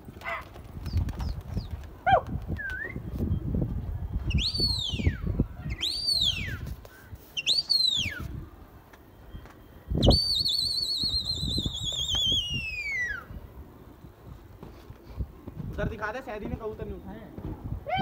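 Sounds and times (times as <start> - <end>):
pigeon wings flapping: 0.0 - 2.9
loud sweeping whistles: 4.3 - 6.7, 10.0 - 13.4.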